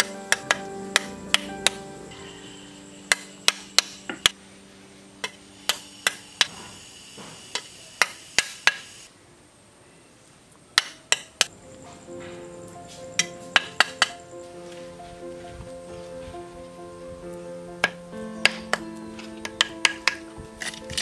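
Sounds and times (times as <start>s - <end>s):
hand tool tapping bricks: 19.4s - 21.0s.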